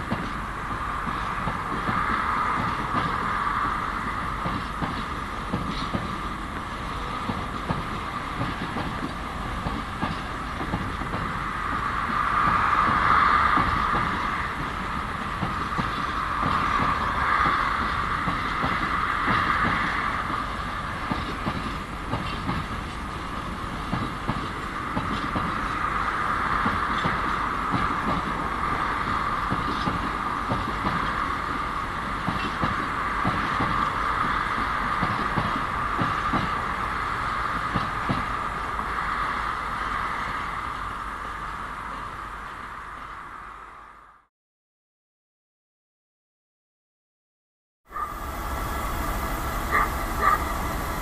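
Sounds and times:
train wagons rumbling: 0:00.0 - 0:43.6, 0:47.9 - 0:51.0
high-pitched hum: 0:47.9 - 0:51.0.

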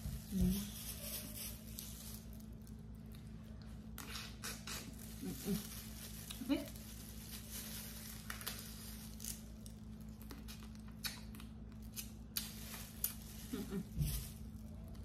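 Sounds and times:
plastic gloves crinkling: 0:00.0 - 0:15.0
steady low hum: 0:00.0 - 0:15.0.

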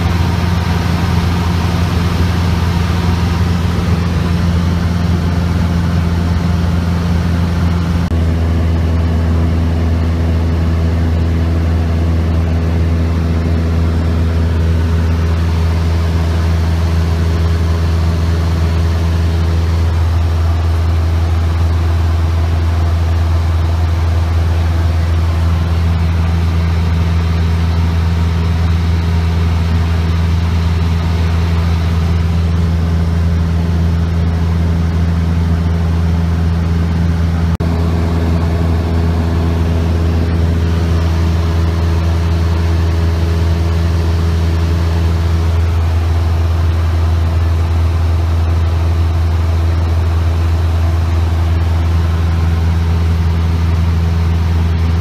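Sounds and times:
aircraft engine and propeller humming: 0:00.0 - 0:55.0.

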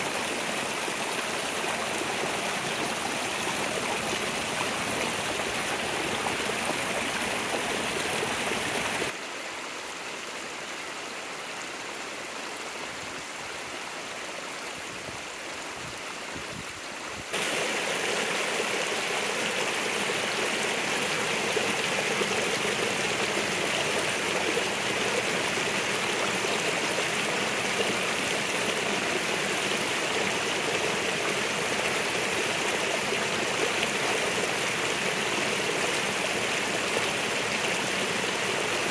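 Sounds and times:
water pouring down a cascade: 0:00.0 - 0:09.2, 0:17.3 - 0:38.9
creek water rushing over rocks: 0:00.0 - 0:38.9.

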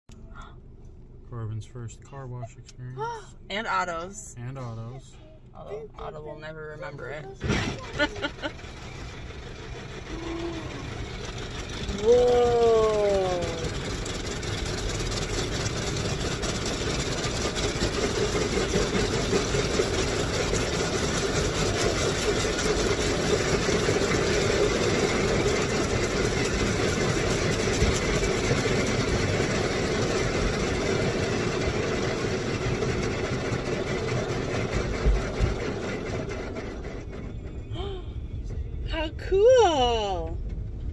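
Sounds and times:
car wash machinery humming: 0:00.1 - 0:40.9
water spraying against car: 0:07.0 - 0:37.3.

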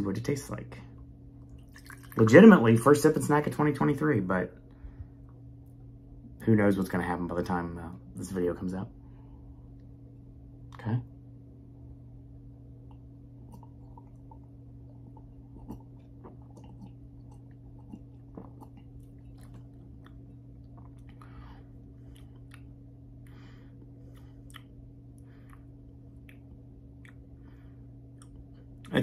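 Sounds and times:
low hum: 0:00.0 - 0:29.0
swallowing and lip smacks: 0:12.8 - 0:23.3, 0:24.1 - 0:27.4, 0:28.1 - 0:29.0
soft breaths: 0:23.2 - 0:24.5.

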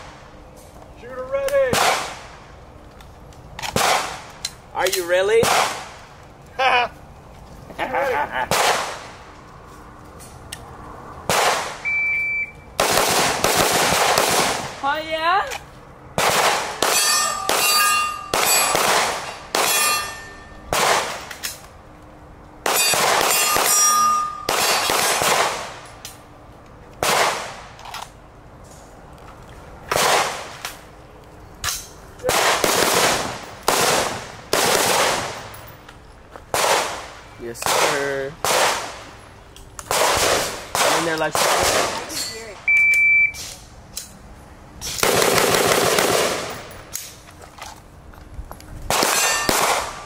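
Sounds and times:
gunshots with echo: 0:01.7 - 0:02.2, 0:05.4 - 0:05.9, 0:16.2 - 0:20.0, 0:32.2 - 0:35.4, 0:36.6 - 0:39.0, 0:39.9 - 0:42.0
steel targets ringing: 0:16.8 - 0:20.7, 0:22.7 - 0:25.2, 0:49.0 - 0:49.9.

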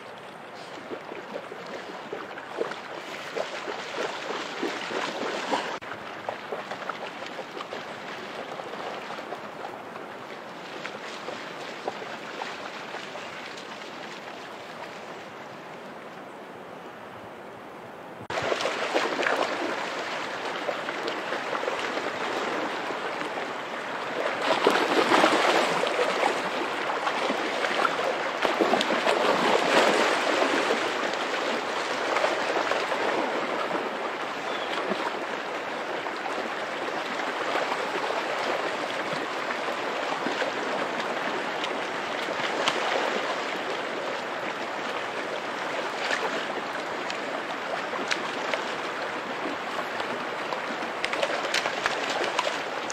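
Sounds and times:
dog splashing through water: 0:00.6 - 0:09.4, 0:18.3 - 0:22.9, 0:24.1 - 0:33.9
river running over rocks: 0:18.3 - 0:52.9.

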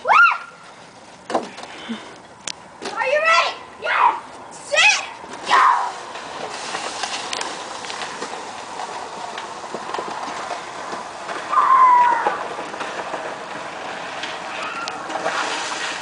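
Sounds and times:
child squealing: 0:11.5 - 0:12.4.

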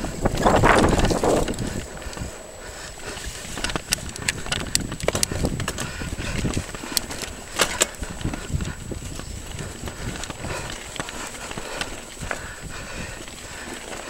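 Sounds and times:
bike clacks and rattles: 0:00.0 - 0:14.0
tyres crunching on loose rock: 0:00.2 - 0:02.0.

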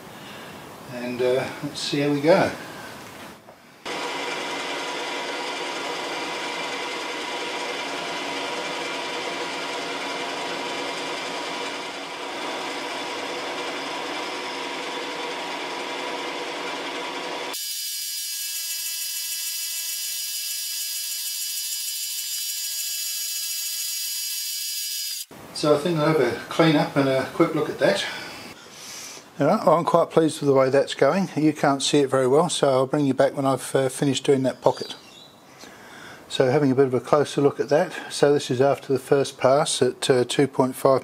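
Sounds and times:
milling machine whine: 0:03.9 - 0:25.3.

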